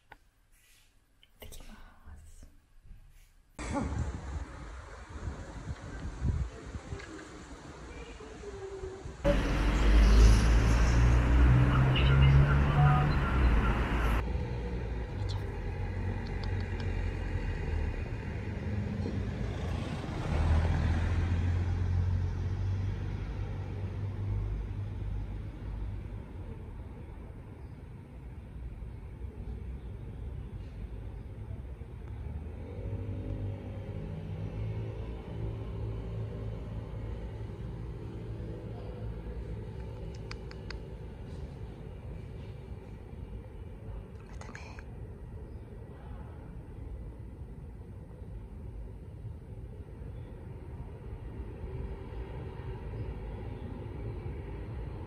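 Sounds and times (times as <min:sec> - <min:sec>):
road traffic rumble: 0:03.6 - 0:55.0
vehicle passing: 0:09.2 - 0:26.8, 0:32.0 - 0:43.0.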